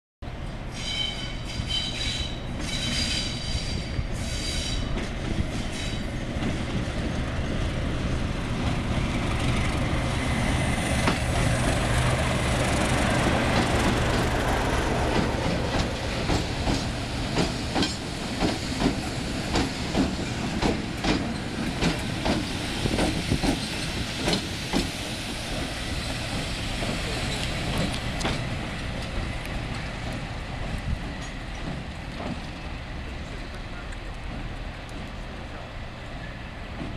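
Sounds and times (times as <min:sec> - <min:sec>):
diesel locomotive engine rumble: 0:00.2 - 0:36.9
train wheels clicking over rail joints: 0:08.5 - 0:35.3.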